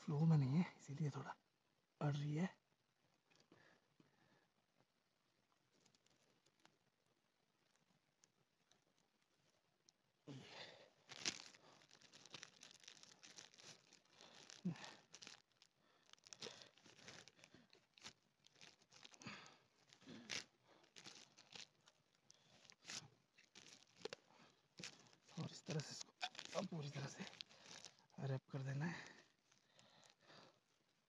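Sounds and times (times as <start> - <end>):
plastic film crinkling: 5.5 - 10.0, 10.6 - 31.0.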